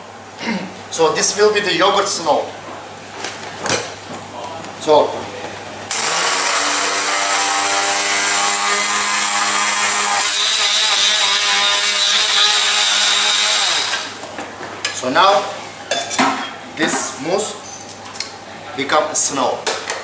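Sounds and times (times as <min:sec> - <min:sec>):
immersion blender motor grinding: 0:05.9 - 0:14.2.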